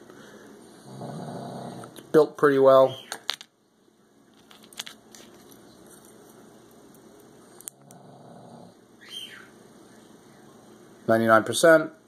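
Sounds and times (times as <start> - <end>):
faint handling noise: 4.3 - 7.7.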